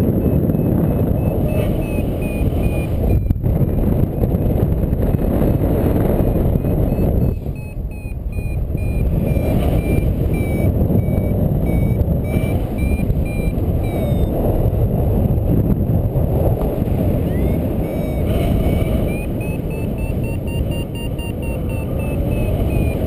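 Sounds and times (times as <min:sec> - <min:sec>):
variometer beeping: 0:00.0 - 0:03.4, 0:06.4 - 0:14.5, 0:17.0 - 0:23.0
wind rushing on microphone: 0:00.0 - 0:23.0.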